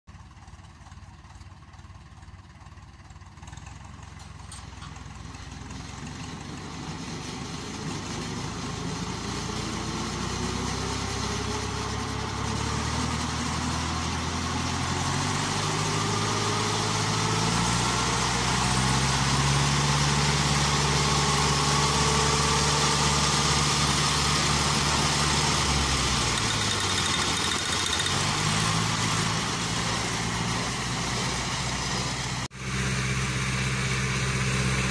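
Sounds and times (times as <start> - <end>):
tractor diesel engine revving: 0.3 - 34.9
disc mower spinning whine: 17.8 - 34.9.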